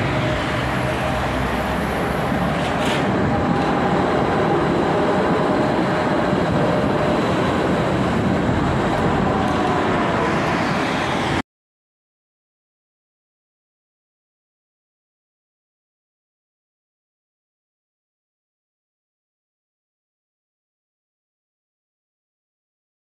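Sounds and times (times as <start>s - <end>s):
tram wheels rumbling on rail: 0.0s - 11.4s.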